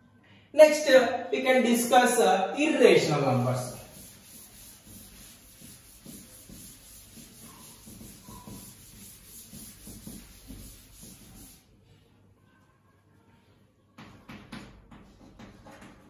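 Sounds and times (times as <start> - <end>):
handwriting scratching: 3.6 - 11.6.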